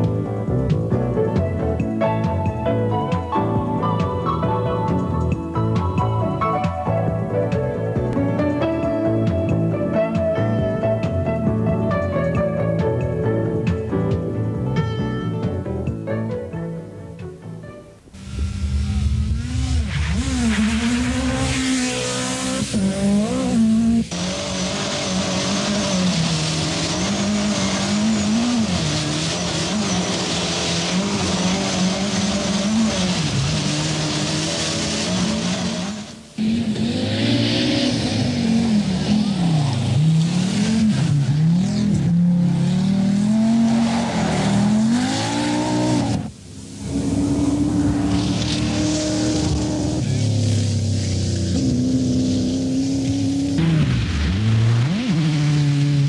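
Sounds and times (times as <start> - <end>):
rally car engines revving: 18.2 - 56.0.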